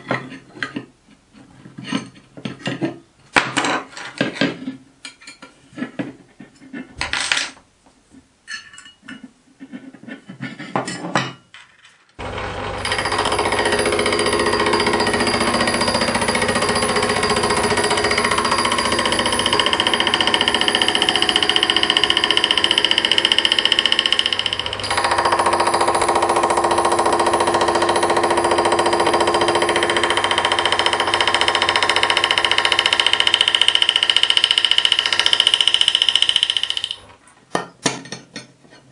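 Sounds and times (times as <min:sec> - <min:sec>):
lathe machining metal: 0:12.2 - 0:35.2.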